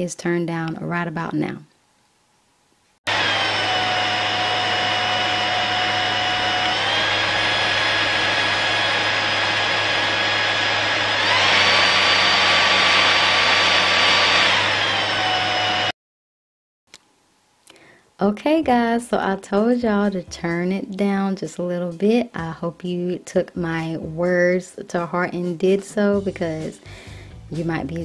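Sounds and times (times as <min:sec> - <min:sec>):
stick vacuum cleaner whining: 0:03.1 - 0:15.9.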